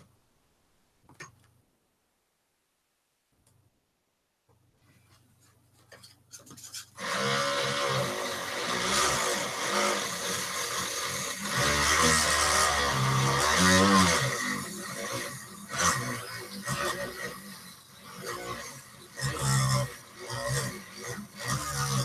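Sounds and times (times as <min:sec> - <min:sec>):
rotary tool sanding cork: 0:05.9 - 0:18.0.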